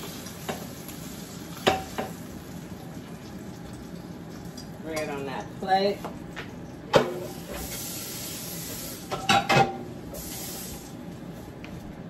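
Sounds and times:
spraying hiss: 10.1s - 10.9s.

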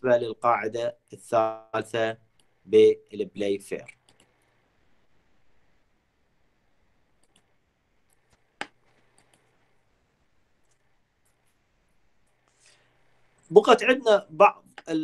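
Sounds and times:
computer mouse click: 3.9s - 4.5s, 7.2s - 9.6s.

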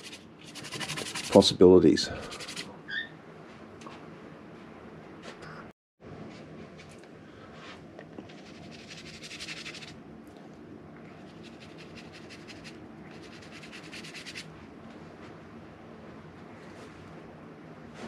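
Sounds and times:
paintbrush scrubbing on canvas: 0.0s - 1.5s, 2.2s - 2.7s, 8.2s - 10.0s, 11.2s - 14.5s.

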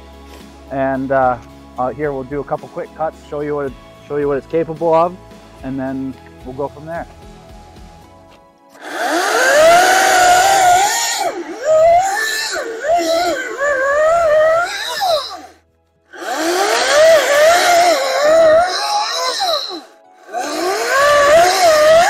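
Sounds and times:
electric chainsaw cutting log: 8.7s - 22.0s.

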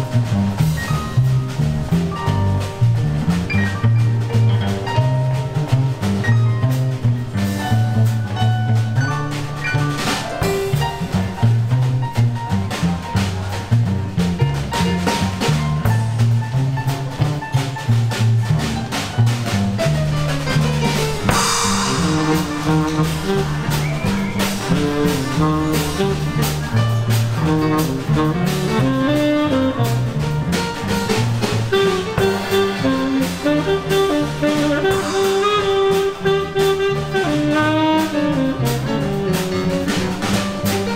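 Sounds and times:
drum kit beat: 0.0s - 40.9s
plucked double bass: 0.0s - 40.9s
cymbal crash: 21.2s - 25.5s
tenor saxophone melody: 27.8s - 30.2s, 31.7s - 39.9s.

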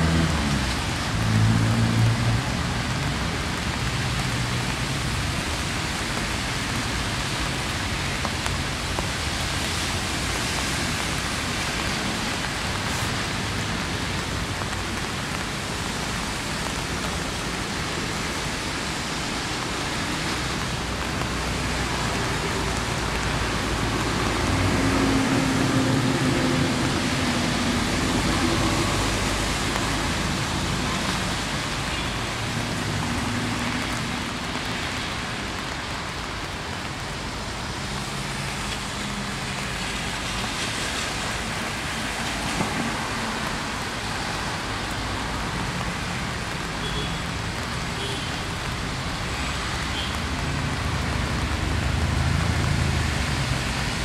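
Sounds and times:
low traffic rumble: 0.0s - 54.0s
rain falling on wet ground: 0.0s - 54.0s.

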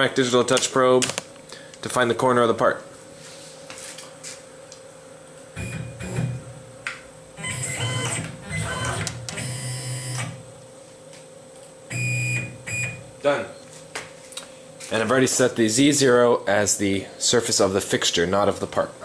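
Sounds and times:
faint steady hum: 0.0s - 19.0s
cnc mill motors whining: 7.4s - 10.5s.

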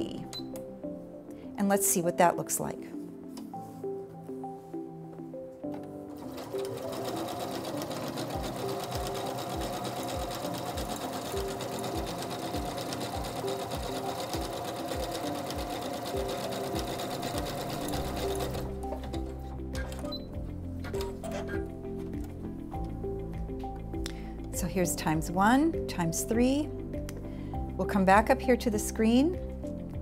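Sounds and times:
sewing machine running: 6.2s - 19.3s.

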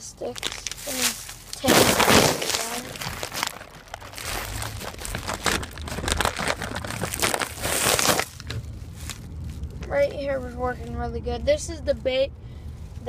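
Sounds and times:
plastic bag crinkling: 0.2s - 9.8s.

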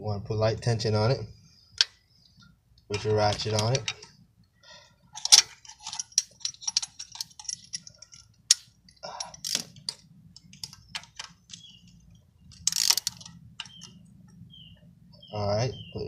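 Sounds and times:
ratchet and hand tools clicking: 12.5s - 13.9s.

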